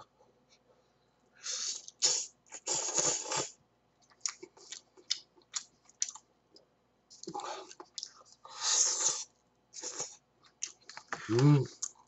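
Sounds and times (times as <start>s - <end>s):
person slurping noodles: 1.5s - 3.6s
smacking and chewing: 1.8s - 8.4s, 9.0s - 12.0s.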